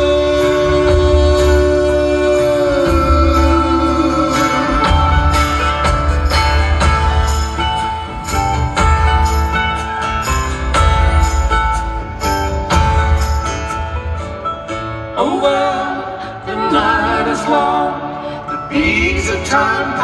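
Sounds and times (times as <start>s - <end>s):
person singing: 0.0s - 6.3s, 15.1s - 20.0s
folk-rock band playing: 0.0s - 20.0s.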